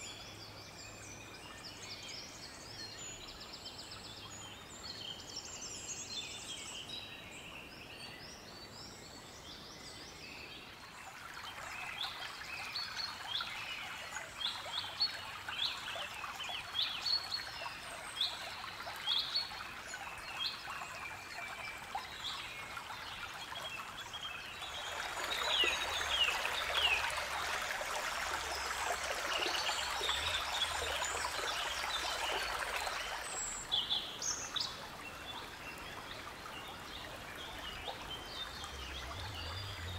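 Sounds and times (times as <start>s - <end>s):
stream trickling and babbling: 0.0s - 39.9s
birds chirping: 23.7s - 39.9s.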